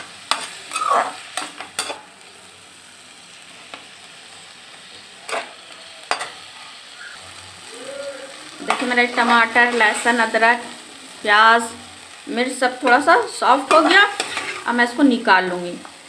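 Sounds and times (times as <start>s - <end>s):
low sizzle of frying: 0.0s - 16.0s
metal spoon scraping a pan: 0.2s - 2.1s, 5.2s - 7.2s, 8.5s - 10.8s, 12.8s - 14.9s.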